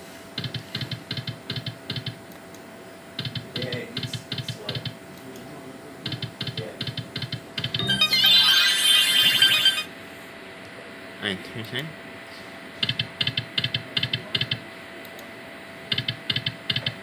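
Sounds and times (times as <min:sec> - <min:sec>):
slot machine reels clicking: 0:07.6 - 0:09.9
bright jingle of sliding chimes: 0:07.8 - 0:09.9.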